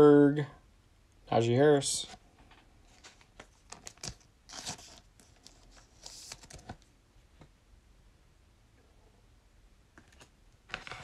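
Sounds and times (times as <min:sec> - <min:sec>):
card stock rustling: 0:02.8 - 0:06.9.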